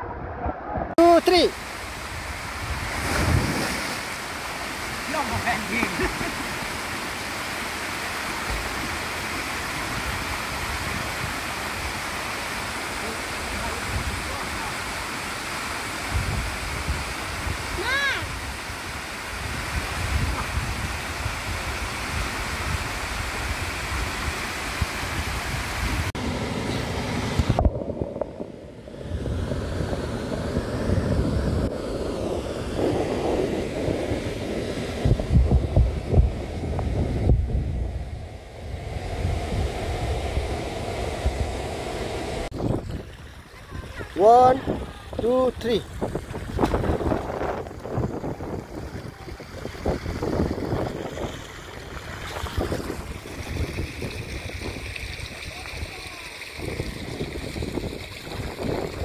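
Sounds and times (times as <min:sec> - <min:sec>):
water cascading into a pool: 0:01.0 - 0:26.2, 0:42.4 - 0:59.0
river rushing over rocks: 0:01.3 - 0:16.0
splashy knocks: 0:02.9 - 0:04.1.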